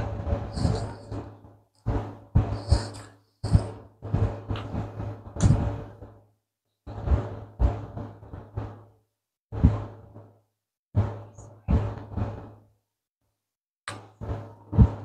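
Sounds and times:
low hum: 0.0 - 6.2
knocks and thumps: 0.0 - 6.3, 6.9 - 10.4, 11.0 - 12.7, 13.9 - 15.0.

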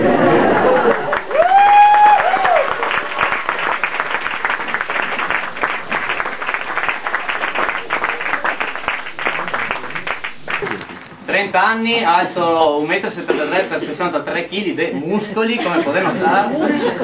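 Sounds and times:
audience applauding: 0.0 - 11.1.

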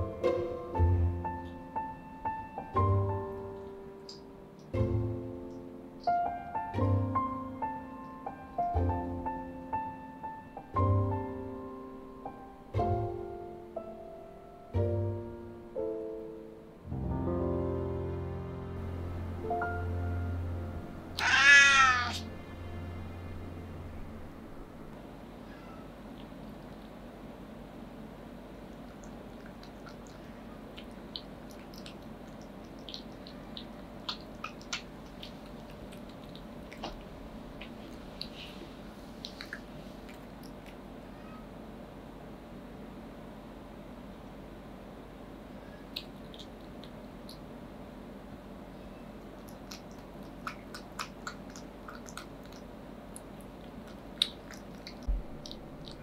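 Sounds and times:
steady low hum: 0.0 - 56.0
cat chewing food: 26.0 - 27.2, 28.6 - 40.9, 49.3 - 56.0
dull low thump: 55.1 - 55.4.

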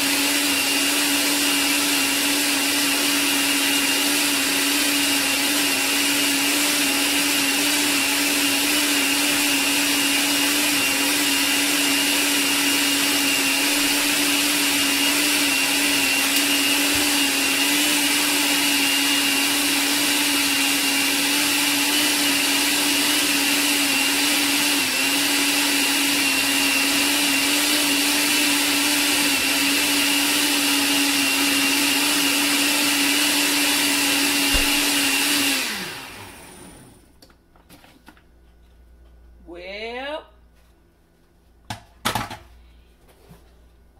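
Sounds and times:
blender motor running: 0.0 - 37.1.

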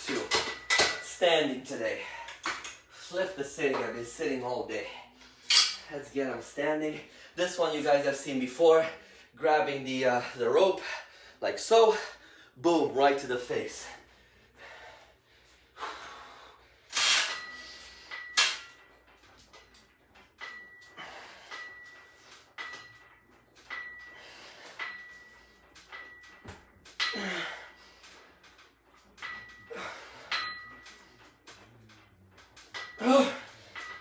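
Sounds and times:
cable machine metallic clinks: 0.0 - 1.2, 16.9 - 34.0.

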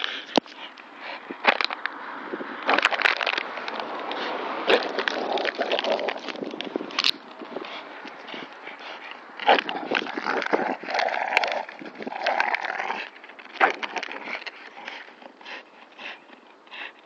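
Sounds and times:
plastic bottle crackling: 2.6 - 3.9, 4.7 - 7.3
dogs growling: 7.5 - 16.4.

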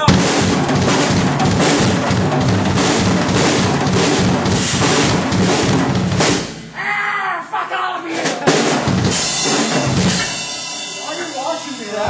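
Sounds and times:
kick and snare drum hits: 0.0 - 6.7
cymbals ringing: 9.1 - 12.0.

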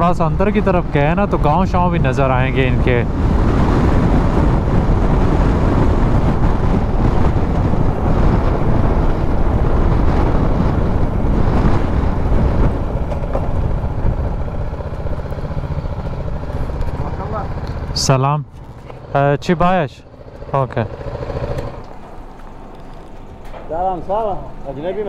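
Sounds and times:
wind noise on microphone: 0.0 - 18.1
motorcycle engine: 0.0 - 25.0.

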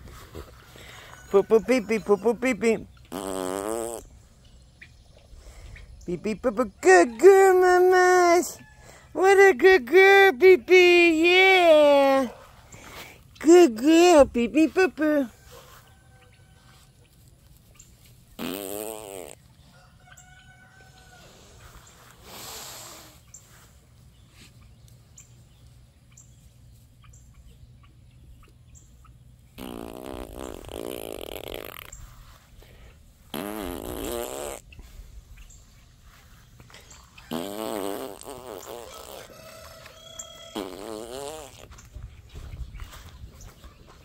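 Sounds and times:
roosters crowing: 0.5 - 2.9, 6.8 - 9.2, 15.3 - 17.0, 19.4 - 22.1, 38.8 - 40.8.

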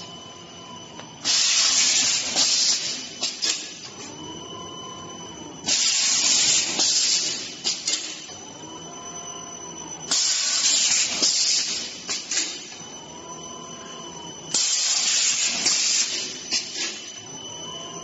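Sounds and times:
machine whine: 0.0 - 18.0
loud machine hiss: 1.2 - 3.7, 5.6 - 8.0, 10.1 - 12.5, 14.5 - 17.0.

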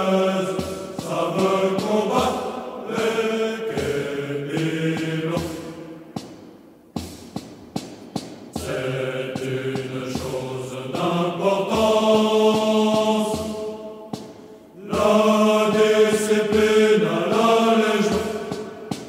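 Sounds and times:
men singing in unison: 0.0 - 6.0, 8.6 - 19.0.

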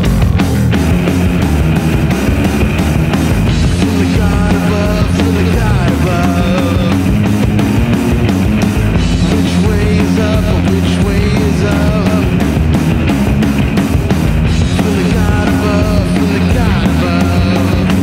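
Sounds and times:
bass guitar: 0.0 - 18.0
drums: 0.0 - 18.0
electric guitar: 0.0 - 18.0.

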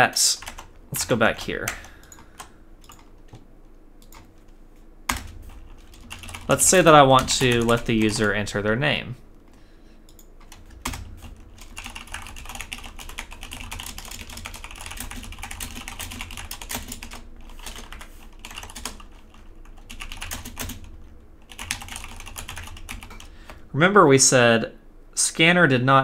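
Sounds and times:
keyboard typing clicks: 1.6 - 3.4, 4.0 - 4.5, 10.1 - 20.9.

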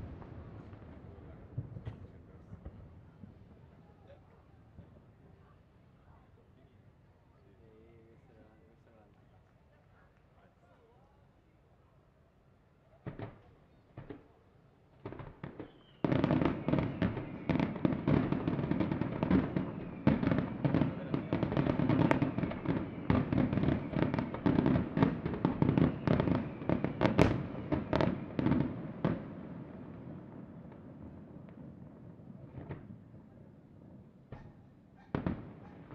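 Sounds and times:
fireworks bangs and bursts: 13.0 - 14.4, 15.0 - 35.9.

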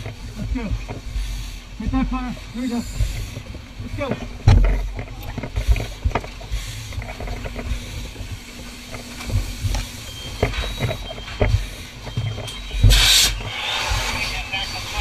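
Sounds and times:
gear and hose knocking and rustling: 0.0 - 14.2
steady low rumble: 0.0 - 15.0
short loud hiss: 12.9 - 14.2.

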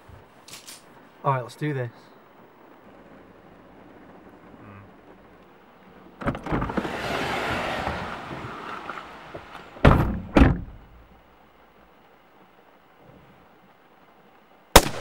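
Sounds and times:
car doors opening: 6.2 - 10.9
car doors slamming: 9.8 - 10.9.

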